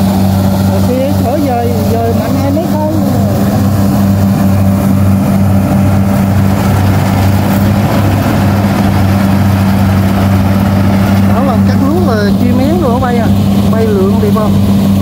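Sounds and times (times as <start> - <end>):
diesel engine humming: 0.0 - 15.0.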